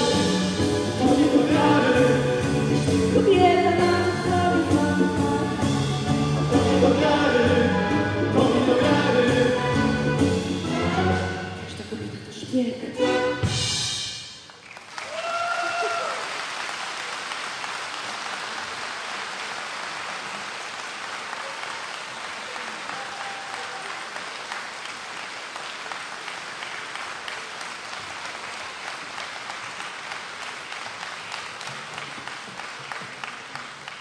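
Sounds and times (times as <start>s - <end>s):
audience applauding: 14.5s - 34.0s.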